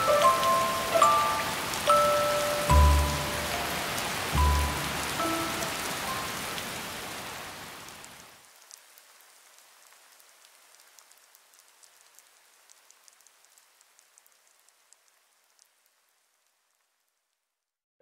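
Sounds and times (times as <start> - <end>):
short musical notes: 0.0 - 6.2
water dripping: 0.0 - 7.2
heavy rain pouring: 0.0 - 16.7.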